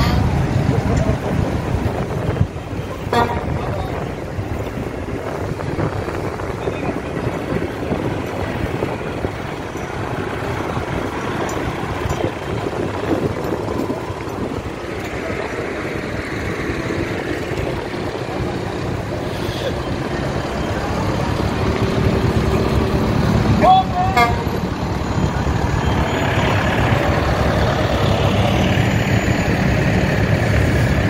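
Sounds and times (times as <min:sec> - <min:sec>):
wind on microphone: 0:00.0 - 0:19.3
tractor engines running: 0:00.0 - 0:31.0.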